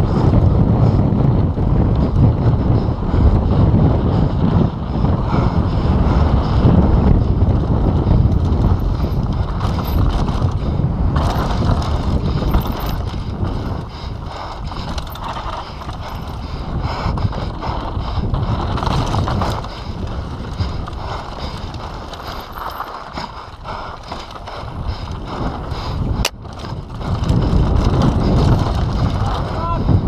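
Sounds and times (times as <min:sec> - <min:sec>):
bike tyres rumbling over gravel: 0:00.0 - 0:30.0
wind on microphone: 0:00.0 - 0:30.0
bike chain clatter: 0:07.8 - 0:29.9.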